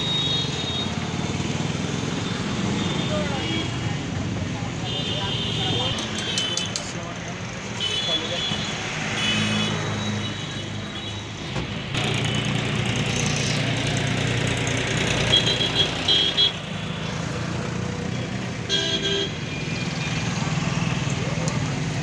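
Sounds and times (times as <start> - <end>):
street traffic going by: 0.0 - 22.0
vehicle horn toots: 18.7 - 19.4.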